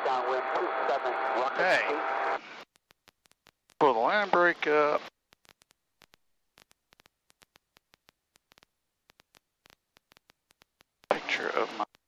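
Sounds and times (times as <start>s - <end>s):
faint irregular clicks: 2.4s - 12.0s.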